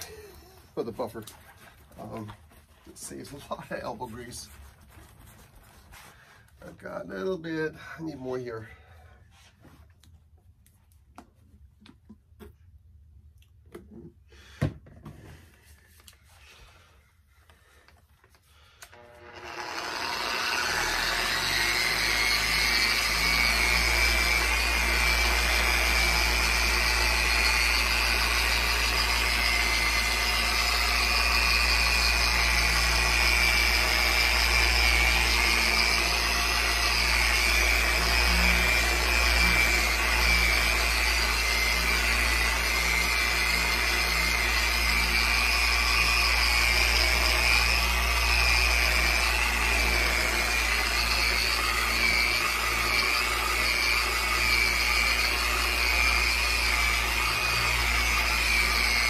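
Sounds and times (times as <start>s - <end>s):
electric polisher whining: 18.8s - 59.0s.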